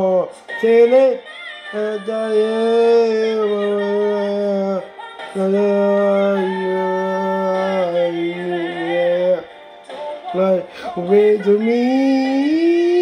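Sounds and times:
man singing unaccompanied: 0.0 - 13.0
breath: 10.6 - 11.0.

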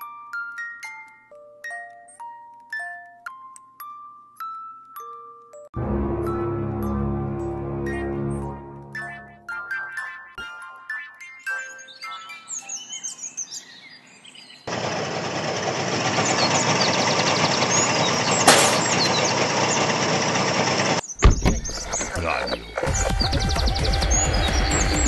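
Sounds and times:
birds chirping: 7.9 - 25.0
low pulsing bus engine: 14.7 - 21.0.

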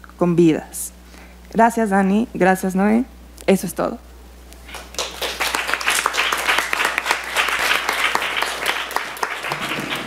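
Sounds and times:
audience applauding: 4.7 - 10.0.

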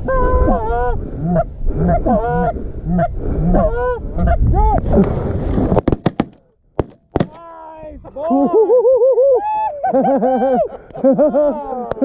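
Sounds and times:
shotgun blasts: 5.8 - 7.4.

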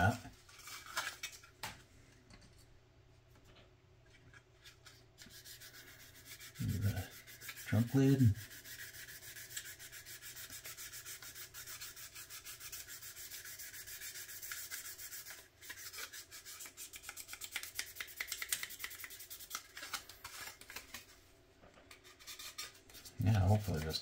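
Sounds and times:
sanding sponge rubbing plastic: 5.2 - 20.9, 22.0 - 24.0.

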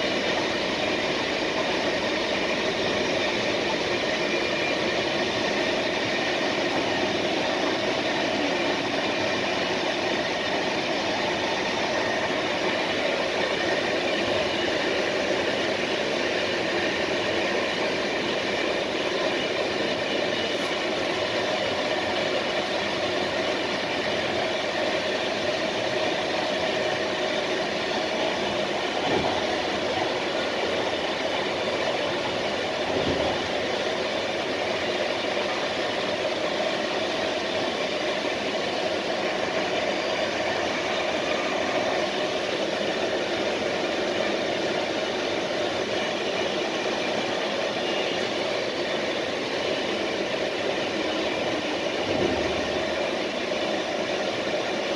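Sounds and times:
train wheels rolling on rails: 0.0 - 54.9
train knocking over points: 27.8 - 34.1.

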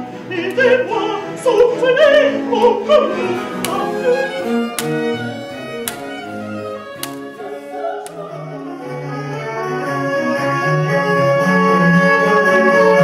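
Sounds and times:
harpsichord: 0.5 - 8.2
bowed strings: 2.5 - 9.0
sharp ticks: 3.6 - 7.5.

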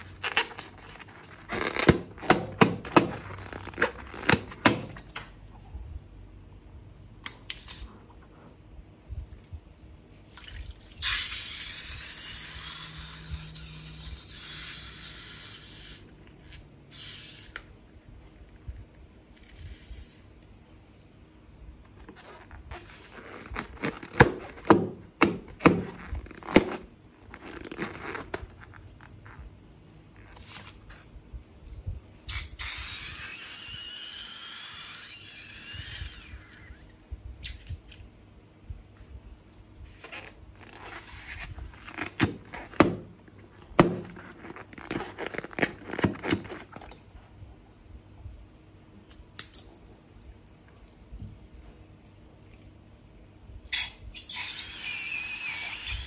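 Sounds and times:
plastic bags crinkling and tearing: 0.0 - 5.2, 25.8 - 29.0, 43.6 - 46.9.

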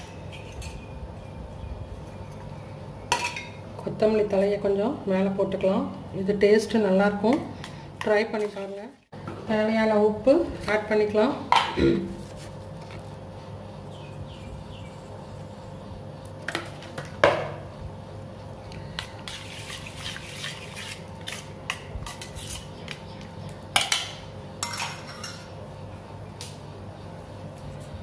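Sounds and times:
metal spoon scraping steel bowl: 19.2 - 22.8.

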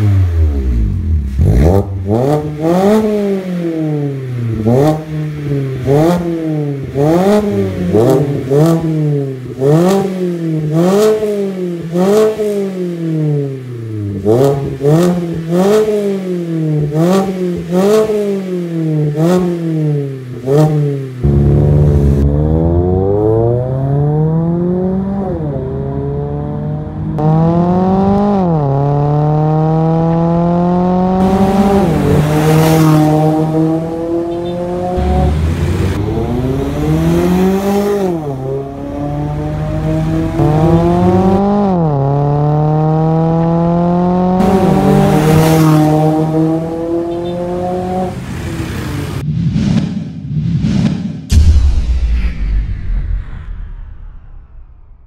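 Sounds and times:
car engine revving: 0.0 - 49.2
car accelerating through gears: 20.4 - 49.2.

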